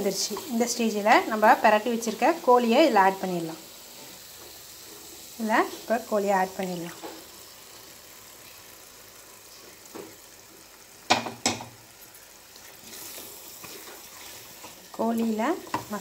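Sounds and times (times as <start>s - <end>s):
chicken sizzling in a pan: 0.0s - 16.0s
knocks on a pan: 11.1s - 11.8s.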